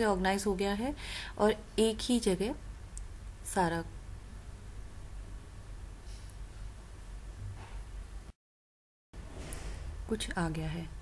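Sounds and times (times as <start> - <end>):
background hiss and hum: 0.0 - 8.3.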